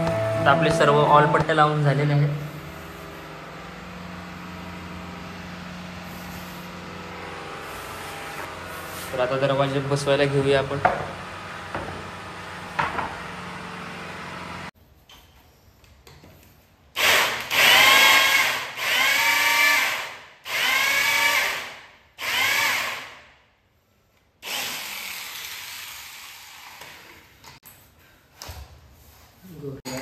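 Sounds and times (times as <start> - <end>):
electric drill boring into wood: 17.0 - 23.2, 24.4 - 27.0.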